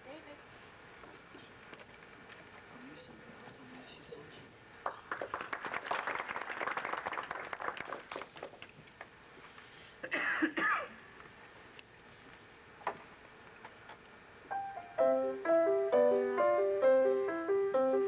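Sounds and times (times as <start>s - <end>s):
light applause: 4.8s - 9.1s.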